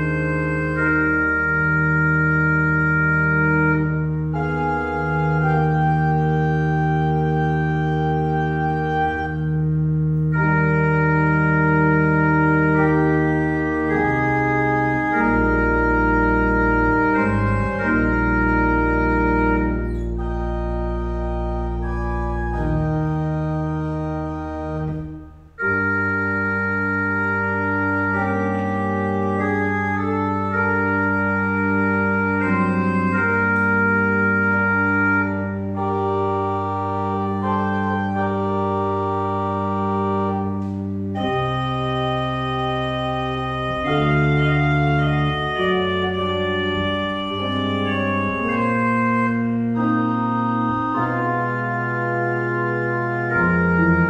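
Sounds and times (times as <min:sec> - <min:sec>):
church organ chords: 0:00.0 - 0:54.0.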